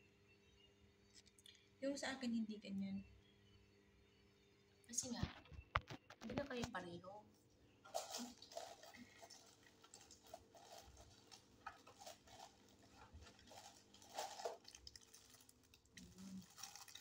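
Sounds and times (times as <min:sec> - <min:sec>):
plastic packaging crinkling: 0:07.9 - 0:17.0.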